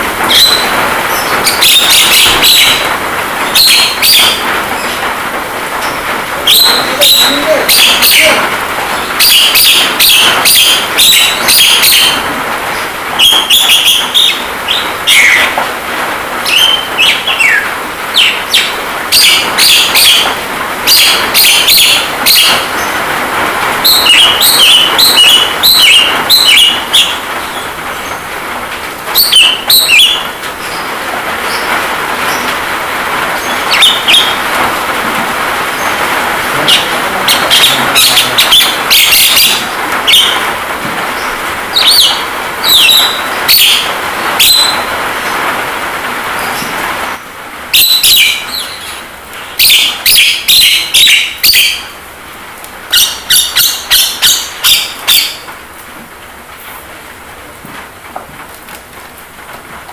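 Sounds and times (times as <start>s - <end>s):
rain hiss: 0.0s - 59.9s
bird chattering song: 0.3s - 5.0s, 5.8s - 12.3s, 13.2s - 15.6s, 16.5s - 23.0s, 23.8s - 28.3s, 29.2s - 30.9s, 33.4s - 34.5s, 35.7s - 40.5s, 41.2s - 44.9s, 47.7s - 52.0s, 52.9s - 55.5s.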